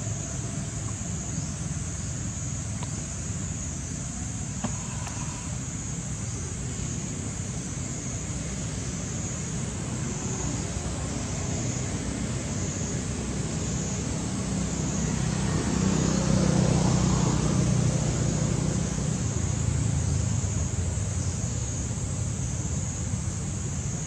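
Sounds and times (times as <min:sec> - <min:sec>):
distant road traffic: 0:00.0 - 0:24.0
steady high hiss: 0:00.0 - 0:24.0
vehicle passing: 0:10.0 - 0:20.7.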